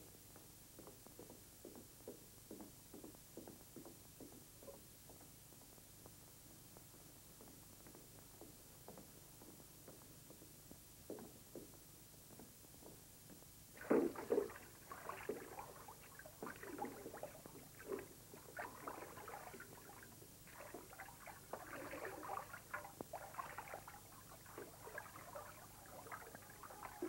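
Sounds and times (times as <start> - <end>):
water sloshing: 13.8 - 27.0.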